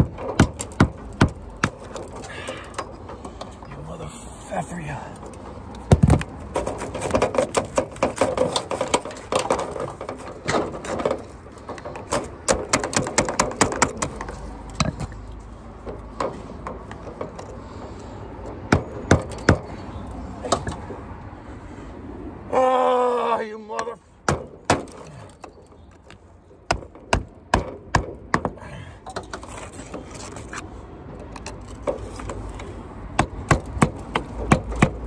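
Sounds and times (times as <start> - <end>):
hand tools clicking and tapping: 5.2 - 17.6.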